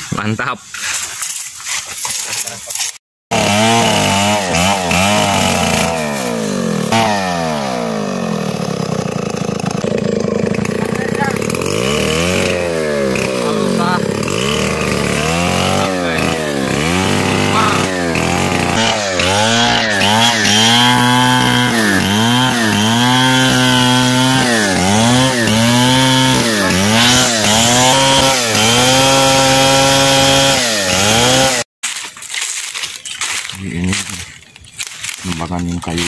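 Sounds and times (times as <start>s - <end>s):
chainsaw engine revving: 2.9s - 31.7s.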